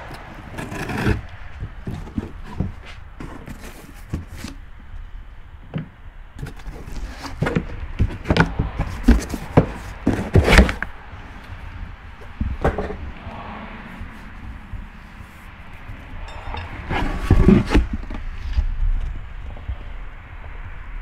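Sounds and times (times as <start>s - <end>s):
box being handled with knocks and scrapes: 0.5s - 4.6s, 5.8s - 10.9s, 16.8s - 18.7s.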